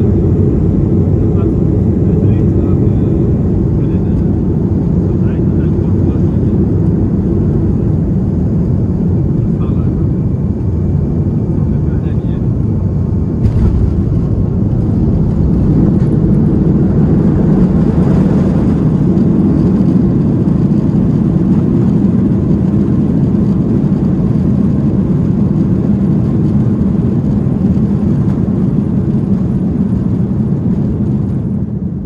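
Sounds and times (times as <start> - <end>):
jet engine reverse thrust roar: 0.0 - 32.0.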